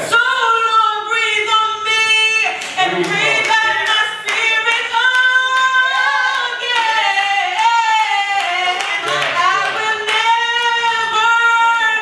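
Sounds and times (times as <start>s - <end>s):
woman singing gospel solo: 0.0s - 12.0s
hand claps: 2.5s - 10.7s.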